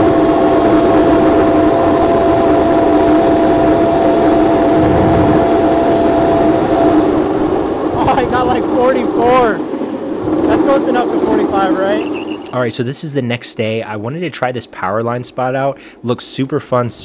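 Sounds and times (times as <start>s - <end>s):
electric motor whining: 0.0s - 8.6s
rough rushing noise: 4.2s - 8.1s.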